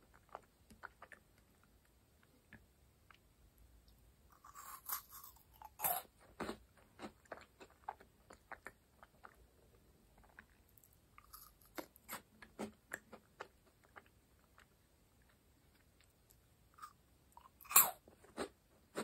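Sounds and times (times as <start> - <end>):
meringue cookie crunching: 4.3 - 19.0.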